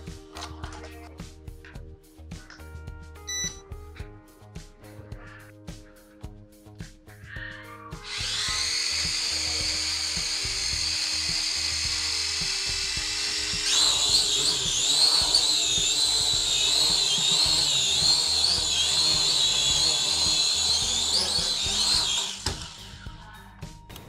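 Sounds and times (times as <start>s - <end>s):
toy drone propellers whining: 8.0s - 23.2s.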